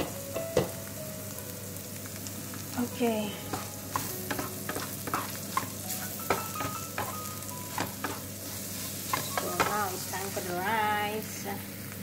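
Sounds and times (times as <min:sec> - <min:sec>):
food sizzling in oil: 0:00.0 - 0:12.0
spatula scraping pan: 0:03.5 - 0:10.3.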